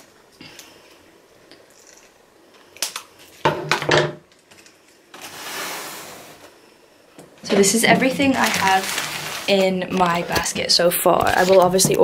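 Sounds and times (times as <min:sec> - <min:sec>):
plastic packaging rustling: 0:07.4 - 0:12.0.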